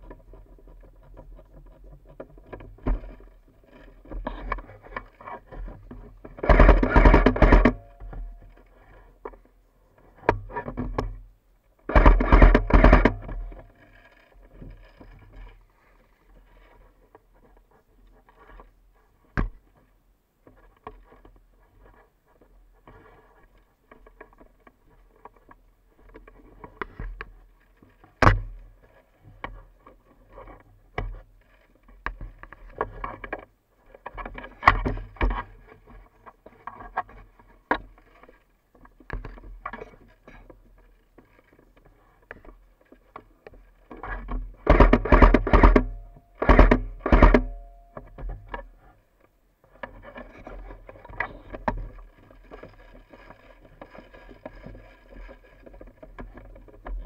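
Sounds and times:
sharp clicks and knocks: 0.0s - 9.5s, 11.8s - 15.5s, 28.0s - 28.6s, 38.8s - 57.0s
rustling and scraping vegetation: 0.0s - 57.0s.

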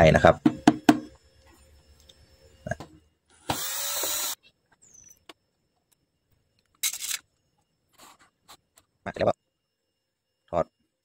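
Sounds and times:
cordless drill spinning: 3.4s - 4.4s.

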